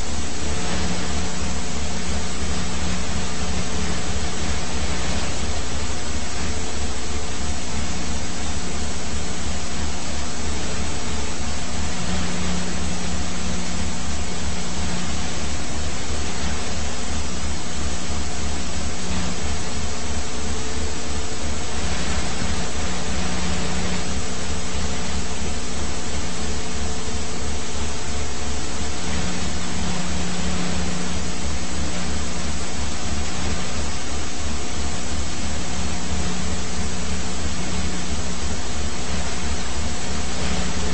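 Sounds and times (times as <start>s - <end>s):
engine hum: 0.0s - 40.9s
helicopter rotor pulsing: 0.0s - 40.9s
rushing hiss: 0.0s - 40.9s.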